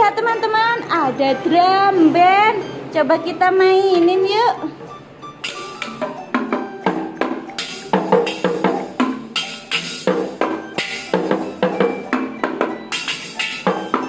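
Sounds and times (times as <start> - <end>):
toy drums struck with sticks: 4.8 - 14.0.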